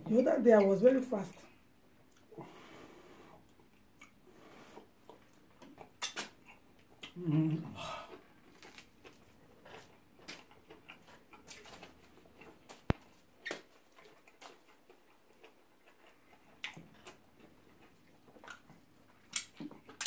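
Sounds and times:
eating smacks and clicks: 5.0 - 7.2, 8.1 - 20.0.

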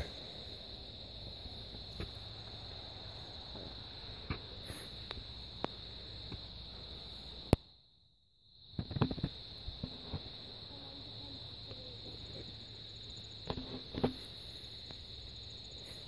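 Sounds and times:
crickets chirring: 0.0 - 16.0
faint ticks: 5.0 - 6.5
small knocks and rustles: 8.7 - 10.3, 13.4 - 14.4.

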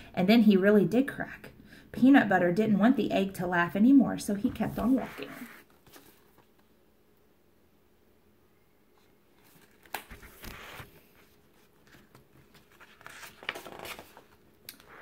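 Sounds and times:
pages rustling: 4.5 - 6.7, 9.0 - 15.0.

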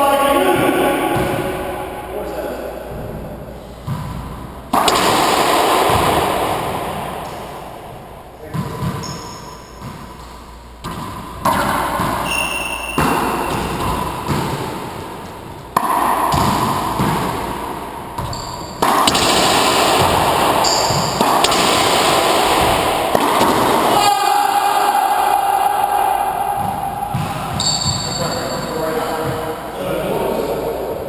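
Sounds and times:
sneakers squeaking on hardwood: 8.6 - 14.6, 18.2 - 18.8.

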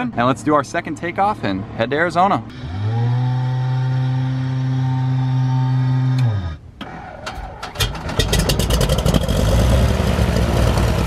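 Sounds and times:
engine starting with sputtering pops: 6.8 - 9.5.

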